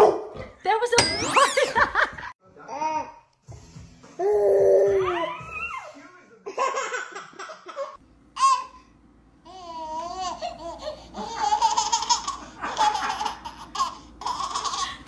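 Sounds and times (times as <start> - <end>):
toddler squealing: 4.3 - 6.0
toddler giggling: 9.5 - 15.0.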